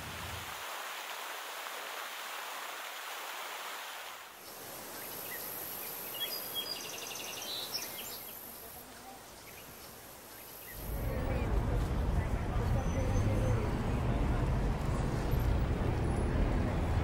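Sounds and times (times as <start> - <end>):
fountain water splashing: 0.0 - 12.8
bird chirping: 5.0 - 8.5.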